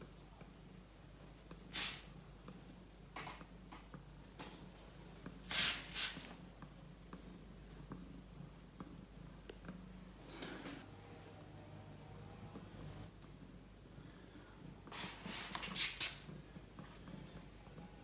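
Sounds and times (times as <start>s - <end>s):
brushing or rustling sounds: 5.4s - 6.4s, 14.9s - 16.3s.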